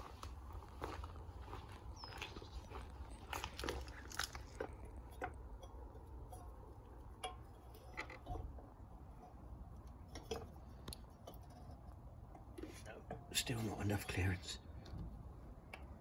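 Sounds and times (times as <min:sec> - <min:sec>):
footsteps on gravel and leaves: 0:00.0 - 0:05.0
light metal clicks and taps: 0:03.7 - 0:13.4, 0:15.6 - 0:16.0.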